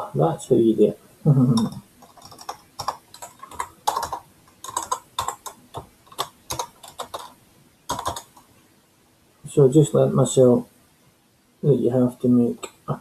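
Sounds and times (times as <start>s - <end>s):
computer keyboard typing: 1.5s - 8.5s.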